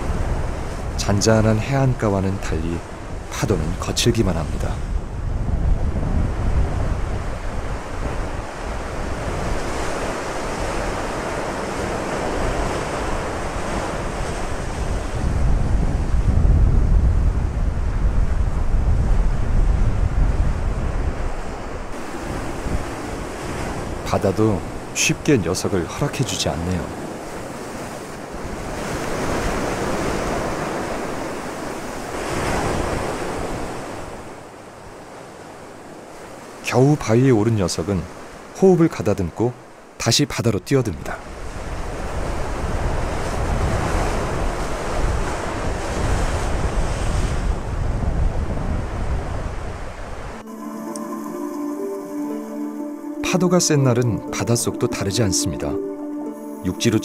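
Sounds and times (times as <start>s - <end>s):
surf breaking over rocks: 21.5s - 25.0s.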